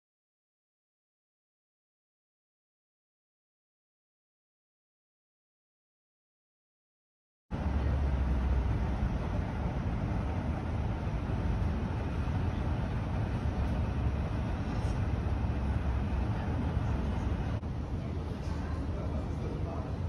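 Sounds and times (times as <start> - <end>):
airport terminal rumble and hiss: 7.5 - 20.0.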